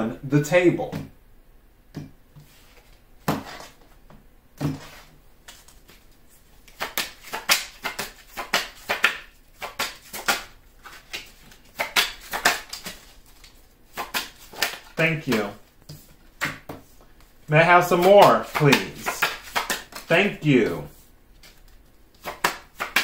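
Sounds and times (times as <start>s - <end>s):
cards being shuffled: 4.7s - 23.0s.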